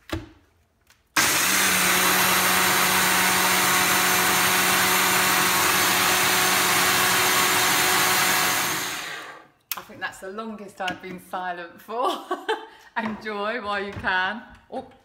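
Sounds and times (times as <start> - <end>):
blender whirring: 1.2 - 9.5.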